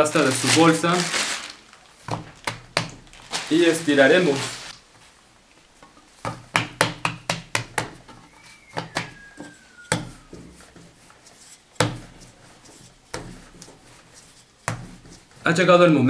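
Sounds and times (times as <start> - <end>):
rolling pin knocking on stone: 6.2 - 8.0.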